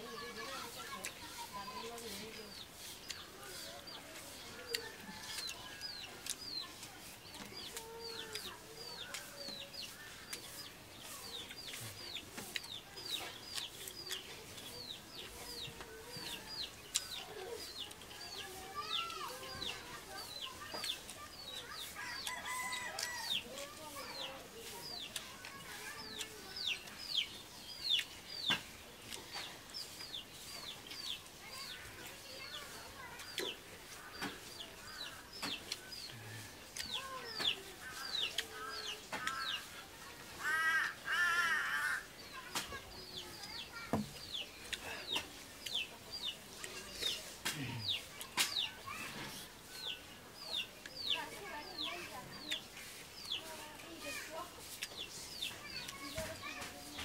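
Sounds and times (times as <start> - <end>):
chicks peeping: 0.0 - 40.4, 42.2 - 57.0
chickens clucking: 0.0 - 57.0.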